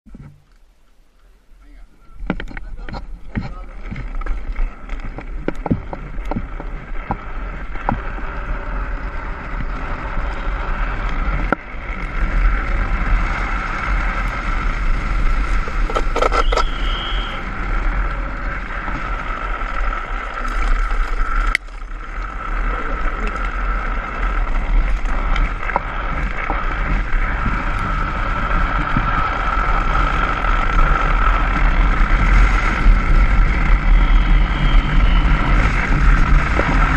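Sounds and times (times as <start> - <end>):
tyres rolling on asphalt: 0.2 - 36.9
wind rushing over microphone: 2.0 - 36.9
thin hum: 15.4 - 19.5
brief high squeal: 16.4 - 17.4.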